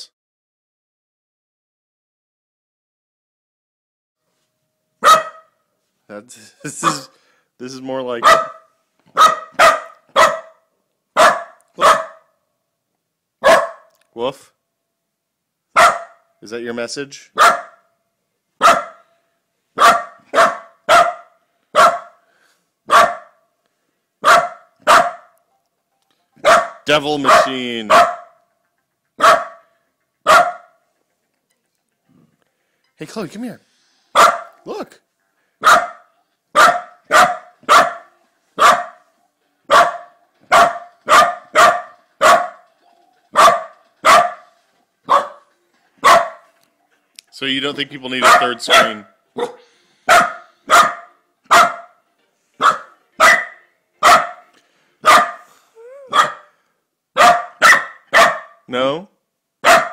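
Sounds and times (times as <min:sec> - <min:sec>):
dog barking: 0:05.0 - 0:05.6, 0:06.8 - 0:07.2, 0:08.2 - 0:12.4, 0:13.4 - 0:14.0, 0:15.7 - 0:16.3, 0:17.4 - 0:17.9, 0:18.6 - 0:19.1, 0:19.8 - 0:22.2, 0:22.9 - 0:23.4, 0:24.2 - 0:25.4, 0:26.4 - 0:28.4, 0:29.2 - 0:30.8, 0:34.1 - 0:34.6, 0:35.6 - 0:39.0, 0:39.7 - 0:42.7, 0:43.3 - 0:44.5, 0:45.1 - 0:46.5, 0:48.2 - 0:52.0, 0:52.6 - 0:56.5, 0:57.2 - 0:58.7, 0:59.6 - 0:59.9.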